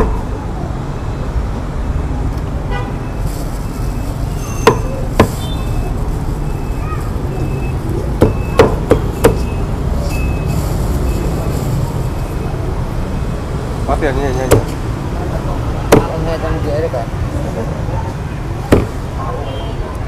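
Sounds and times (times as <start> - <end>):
cleaver chopping on wooden block: 8.2 - 9.4, 14.5 - 14.8, 15.9 - 16.1, 18.7 - 19.0.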